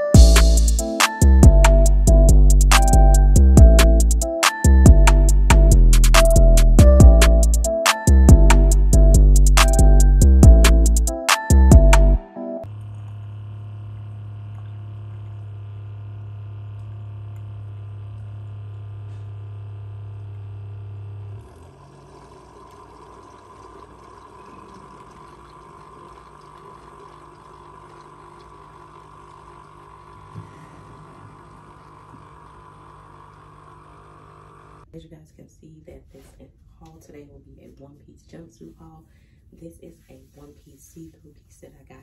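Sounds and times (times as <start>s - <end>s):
loud low drone: 0.2s - 4.2s.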